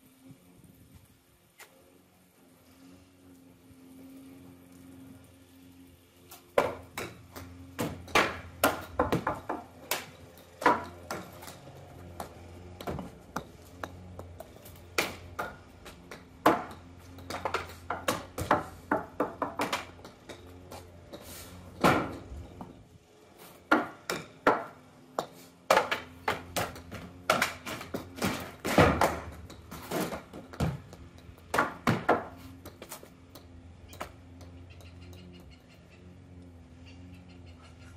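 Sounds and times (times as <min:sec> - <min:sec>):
balls striking books and metal: 0:06.3 - 0:22.8, 0:23.4 - 0:35.6.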